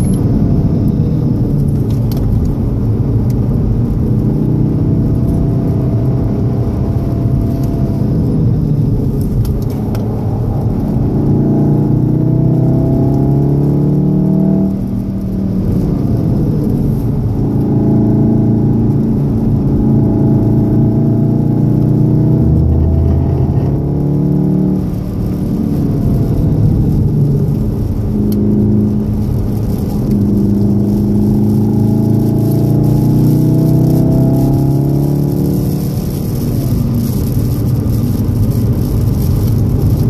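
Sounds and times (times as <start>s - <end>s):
car engine while driving: 0.0s - 40.0s.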